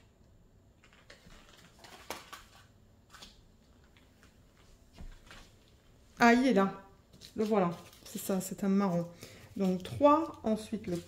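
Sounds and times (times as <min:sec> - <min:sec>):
plastic bags rustling: 0:00.8 - 0:11.0.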